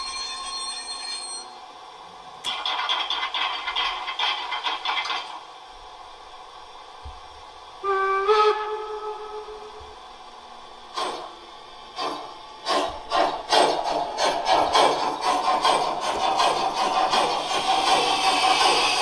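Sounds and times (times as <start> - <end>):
model steam locomotive chuffs: 2.4 - 5.4, 10.9 - 19.0
steam whistle: 7.8 - 10.0
steam hisses: 13.5 - 19.0.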